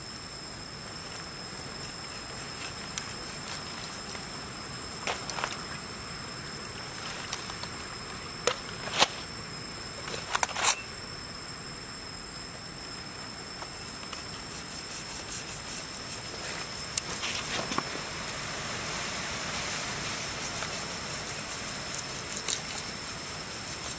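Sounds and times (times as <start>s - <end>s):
high-pitched insect drone: 0.0s - 23.9s.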